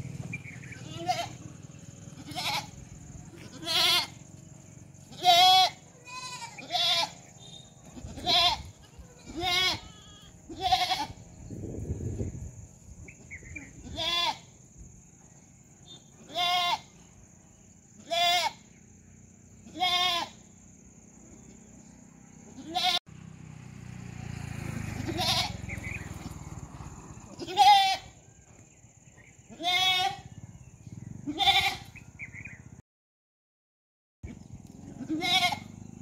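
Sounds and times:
goat bleating: 0.4s - 4.3s, 5.0s - 11.2s, 13.2s - 14.6s, 16.2s - 17.0s, 18.0s - 18.7s, 19.6s - 20.4s, 22.5s - 23.0s, 25.0s - 25.6s, 27.2s - 28.2s, 29.5s - 30.4s, 31.2s - 32.0s, 34.8s - 35.8s.

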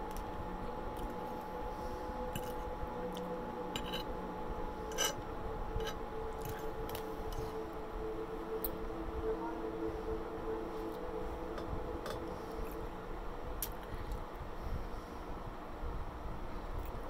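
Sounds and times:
steady background hum: 0.0s - 17.0s
fork scraping china plate: 3.8s - 4.1s, 4.9s - 5.2s, 5.8s - 7.4s.

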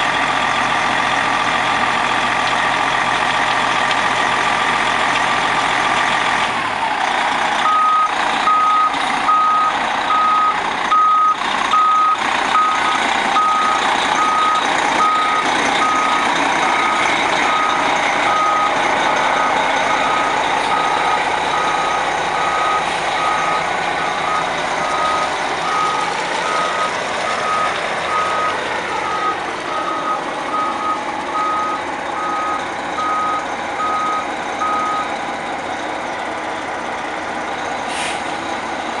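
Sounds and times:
diesel engine running: 0.0s - 39.0s
reverse alarm beeping: 7.6s - 35.1s.

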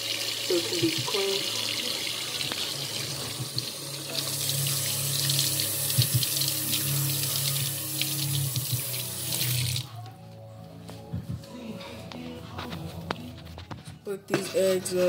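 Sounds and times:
tap water splashing in sink: 0.0s - 4.3s, 5.2s - 9.8s.

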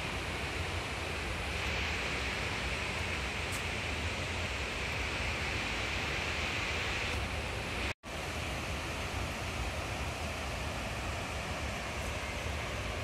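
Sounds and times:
water rushing over weir: 0.0s - 13.0s.

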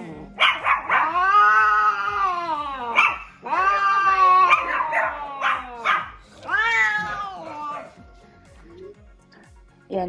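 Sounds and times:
cats yowling: 0.4s - 8.0s.

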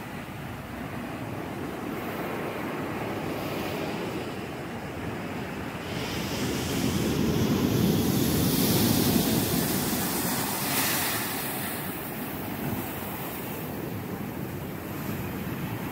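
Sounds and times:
surf breaking on rocks: 6.0s - 13.2s.

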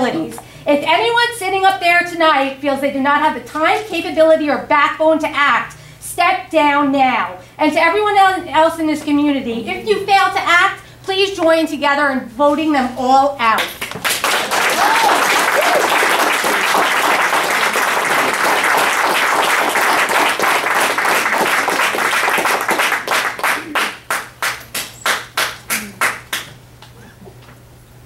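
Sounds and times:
audience applause: 13.9s - 26.5s.

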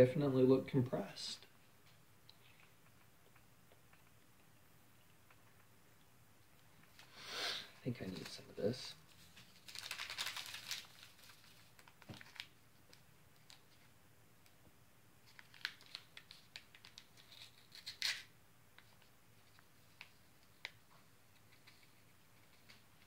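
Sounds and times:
foil pouch clicks and rustles: 9.6s - 12.5s, 15.3s - 18.3s
packet tearing open: 9.6s - 12.5s, 15.3s - 18.3s.

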